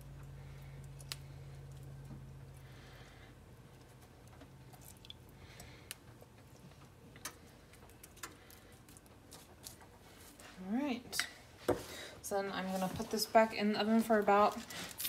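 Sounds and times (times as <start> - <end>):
low hum: 0.0 - 11.5.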